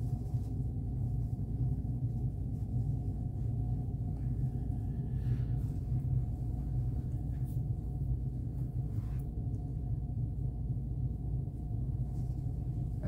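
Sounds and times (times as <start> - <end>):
towel rustling: 0.0 - 9.9
low background drone: 0.0 - 13.0.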